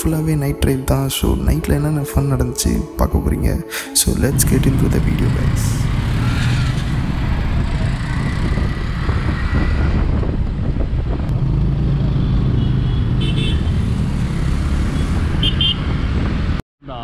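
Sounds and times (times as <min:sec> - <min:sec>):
wind and road noise: 0:04.0 - 0:16.6
motorcycle engine: 0:04.2 - 0:16.6.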